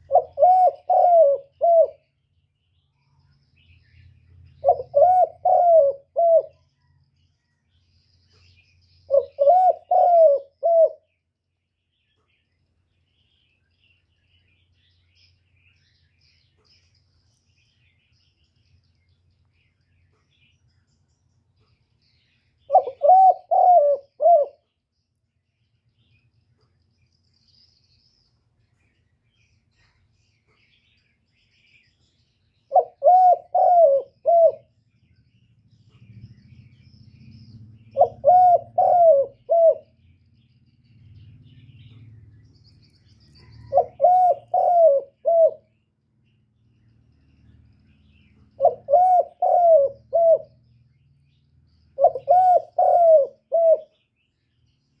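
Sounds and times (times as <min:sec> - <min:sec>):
dove cooing: 0:00.0 - 0:02.1, 0:04.6 - 0:07.0, 0:09.1 - 0:11.1, 0:22.7 - 0:24.7, 0:32.7 - 0:34.8, 0:37.9 - 0:40.0, 0:43.4 - 0:45.7, 0:48.5 - 0:50.6, 0:51.9 - 0:54.0.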